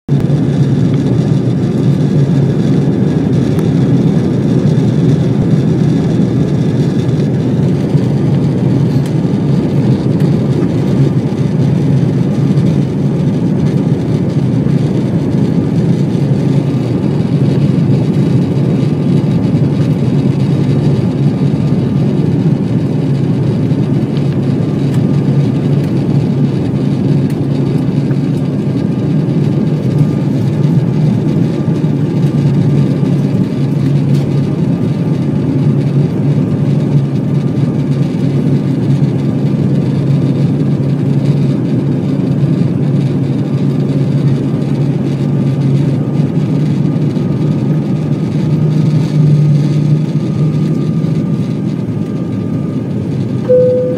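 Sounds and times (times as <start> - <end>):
airliner engines rumbling: 0.1 - 53.9
faint high whine: 53.4 - 53.9.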